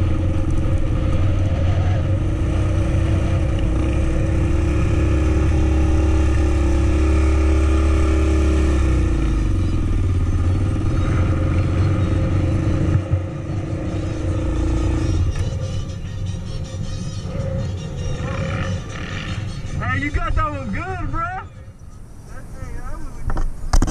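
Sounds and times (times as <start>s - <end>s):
quad engine running: 0.0s - 19.9s.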